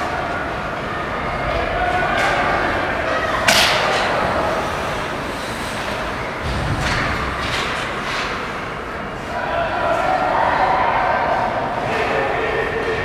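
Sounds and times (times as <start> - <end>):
sticks puck and skates clacking: 2.0 - 9.3.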